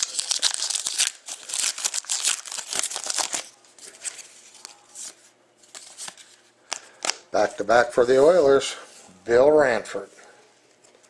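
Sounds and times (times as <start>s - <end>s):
foil wrapper crinkling and tearing: 0.0s - 4.7s
cards rustling: 0.0s - 7.6s.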